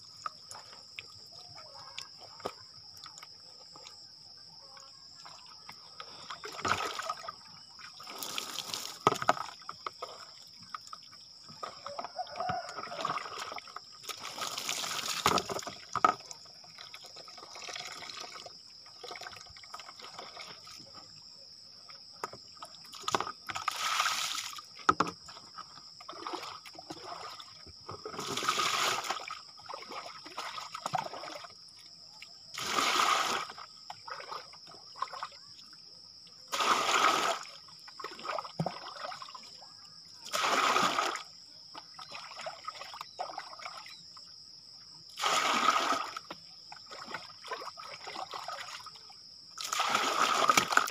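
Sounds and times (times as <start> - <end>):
water splashing over body: 5.2 - 21.0, 22.8 - 24.8, 26.0 - 35.5, 36.5 - 39.6, 40.2 - 44.0, 45.1 - 50.9.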